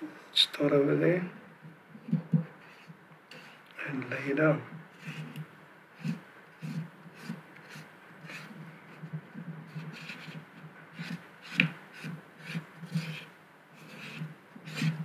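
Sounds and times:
cotton swab rubbing: 0:02.0 - 0:03.7, 0:04.9 - 0:15.0.

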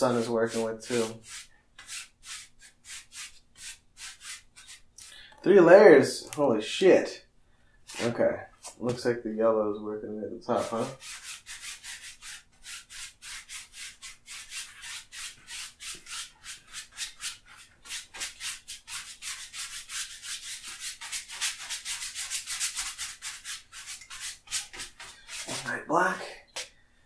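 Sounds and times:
brush scrubbing paint on canvas: 0:00.0 - 0:04.9, 0:10.5 - 0:25.8.

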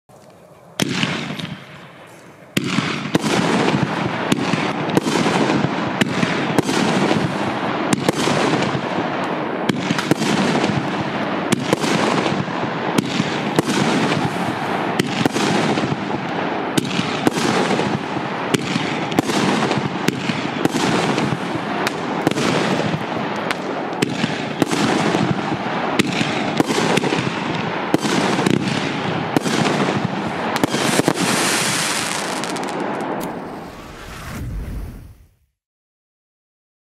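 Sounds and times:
firework cake bangs: 0:02.6 - 0:32.8
rushing noise: 0:33.2 - 0:35.4.

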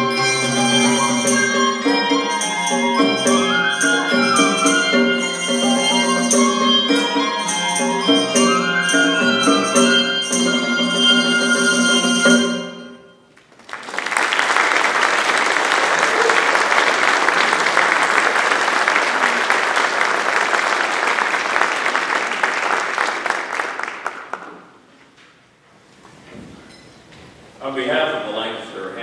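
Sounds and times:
handbell choir chord ringing: 0:00.0 - 0:13.2
audience applauding: 0:13.3 - 0:24.9.

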